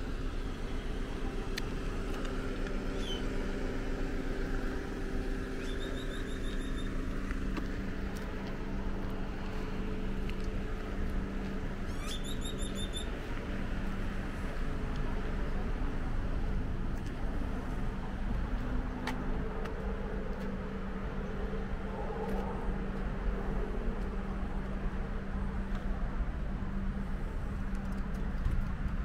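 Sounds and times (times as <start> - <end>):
low outdoor rumble: 0.0 - 29.0.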